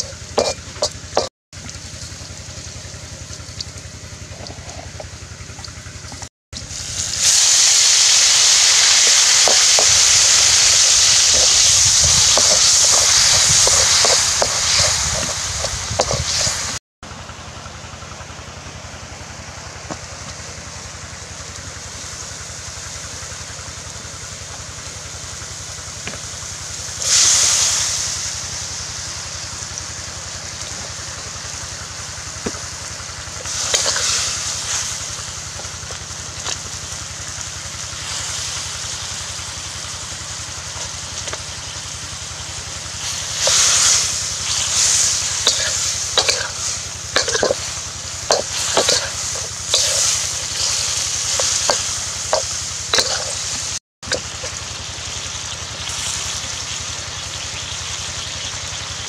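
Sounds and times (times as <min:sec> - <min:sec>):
metal spatula stirring in wok: 0:00.0 - 0:01.3, 0:11.7 - 0:16.8, 0:33.5 - 0:34.7, 0:43.0 - 0:53.8
food sizzling in oil: 0:00.0 - 0:06.0, 0:06.6 - 0:16.8, 0:21.2 - 0:59.0.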